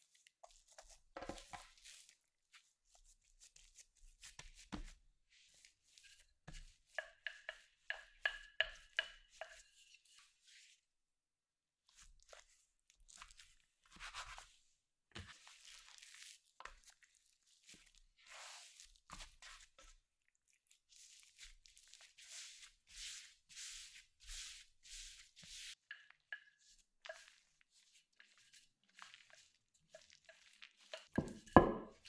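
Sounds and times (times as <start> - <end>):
soft rubbing of hands on dough: 0.0 - 11.0, 11.8 - 32.0
dough scraper cutting dough: 31.1 - 32.0.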